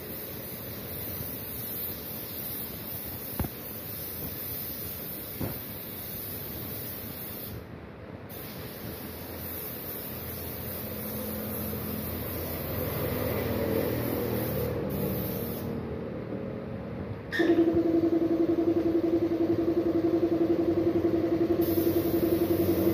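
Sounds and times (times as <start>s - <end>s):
paint spray gun hissing: 0.0s - 7.6s, 8.3s - 15.8s, 21.6s - 22.9s.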